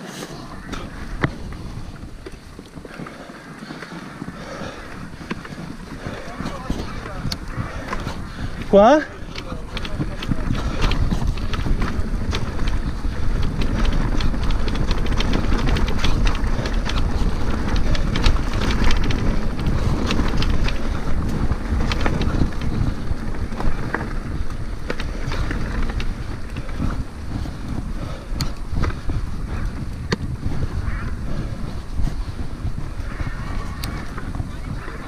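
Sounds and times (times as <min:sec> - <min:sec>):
bike clicking and rattling: 0:00.0 - 0:35.0
wind buffeting microphone: 0:00.0 - 0:35.0.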